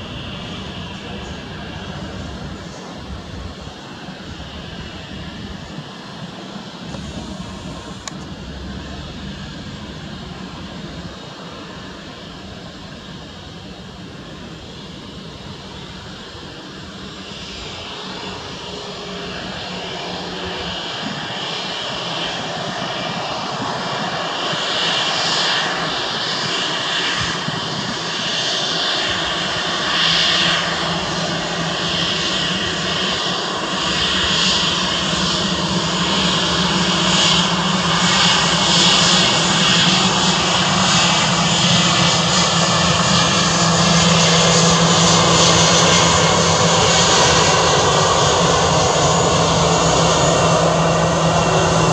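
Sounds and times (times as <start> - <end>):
jet engine whine: 0.0 - 51.9
low hum: 6.8 - 14.0.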